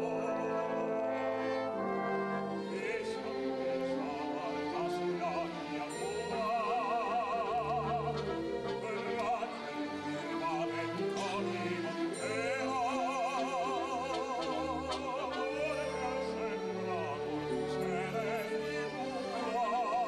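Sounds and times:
orchestral accompaniment: 0.0s - 20.0s
operatic voices singing: 2.5s - 20.0s.

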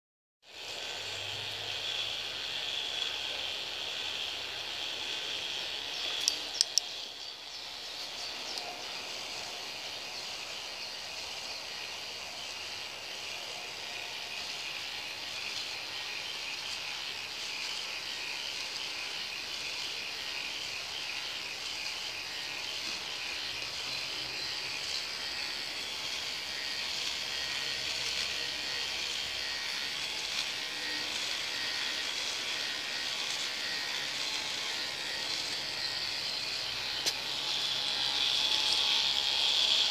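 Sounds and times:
high-pitched rattle of plastic gears: 2.8s - 11.5s, 12.2s - 39.9s
sharp clicks: 6.1s - 7.1s.

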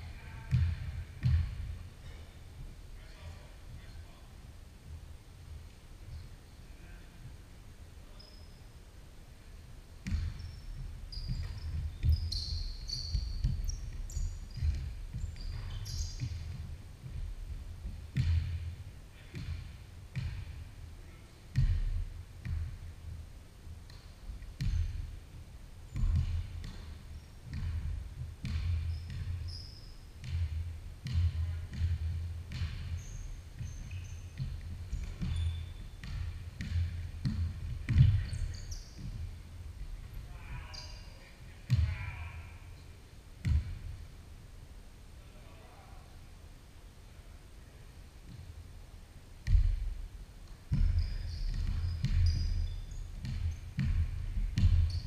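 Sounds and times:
basketball bouncing on hardwood floor: 0.4s - 2.7s, 10.0s - 20.7s, 21.5s - 22.8s, 23.9s - 25.1s, 25.9s - 39.4s, 41.7s - 42.2s, 43.4s - 44.0s, 49.4s - 55.0s
sneaker squeaks: 8.1s - 8.8s, 10.0s - 17.2s, 23.9s - 25.1s, 25.9s - 42.8s, 50.7s - 55.0s.

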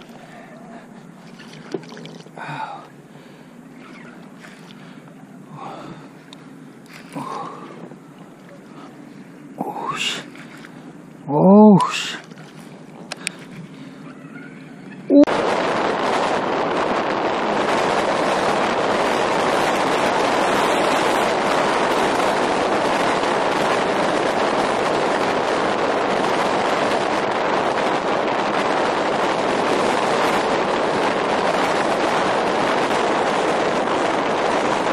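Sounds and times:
waves washing on rocky shore: 0.0s - 10.9s, 15.3s - 34.9s
wind rushing: 15.0s - 34.9s.

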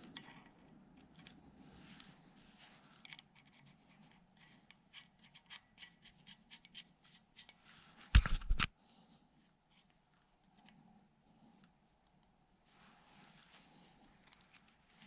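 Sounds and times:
metal washers clicking and scratching: 14.0s - 15.0s.

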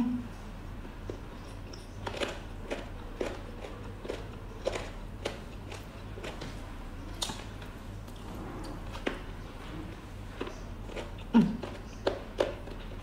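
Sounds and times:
person chewing: 1.6s - 7.4s, 10.0s - 13.0s.

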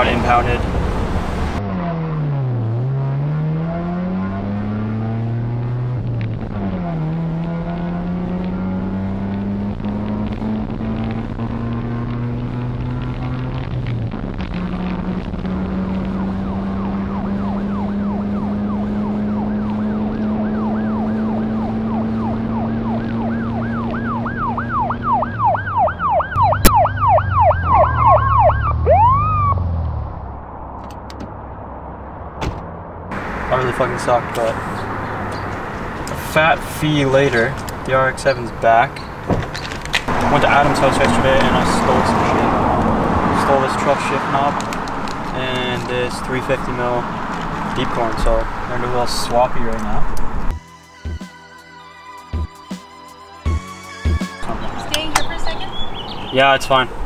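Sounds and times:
car engine revving: 0.0s - 50.6s
police siren yelping: 16.3s - 29.8s.

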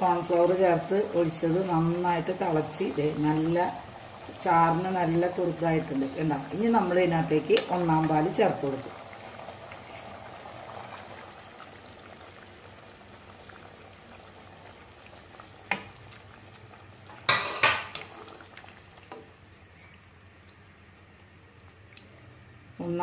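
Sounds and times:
stew sizzling in a pan: 0.0s - 21.0s.

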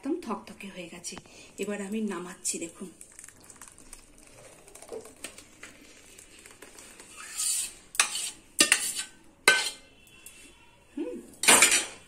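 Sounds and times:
spoon scraping custard from pan: 7.0s - 10.6s
spoon clinking against pan: 8.0s - 9.9s, 11.4s - 12.0s.

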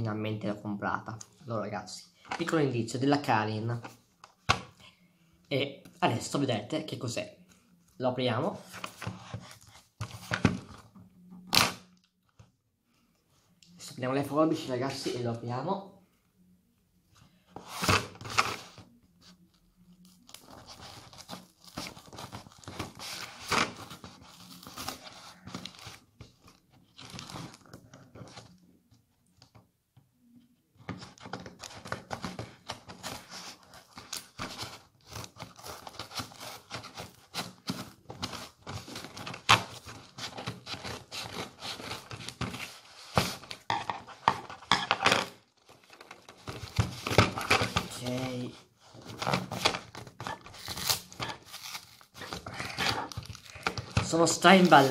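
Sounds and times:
packing paper crinkling: 31.4s - 54.9s
cardboard and tape tearing: 31.6s - 54.9s.

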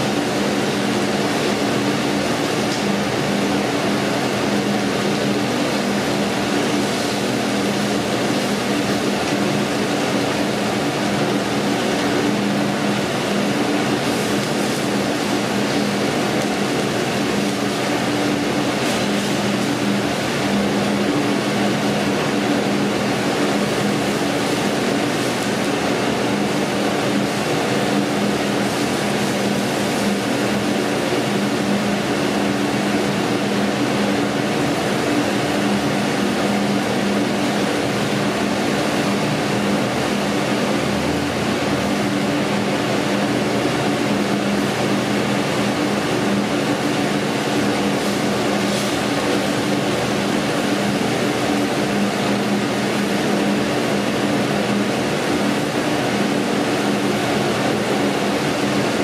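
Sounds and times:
steak sizzling on a grill: 6.0s - 9.4s, 13.8s - 19.8s, 28.6s - 30.6s, 47.9s - 49.7s.

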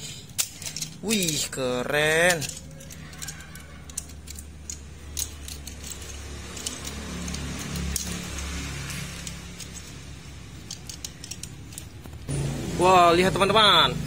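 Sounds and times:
plastic toy clicks and snaps: 2.2s - 6.0s.

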